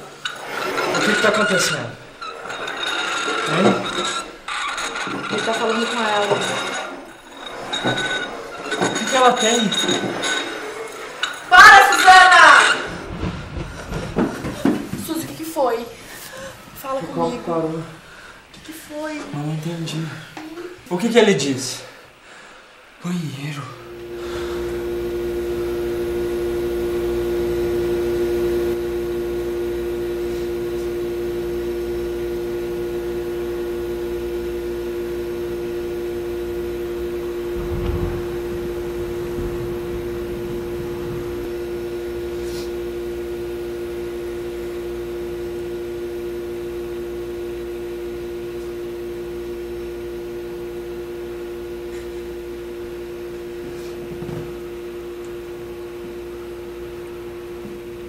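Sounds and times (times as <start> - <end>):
low droning tone: 23.8 - 29.2, 33.0 - 45.4
soft low thud: 37.5 - 42.3.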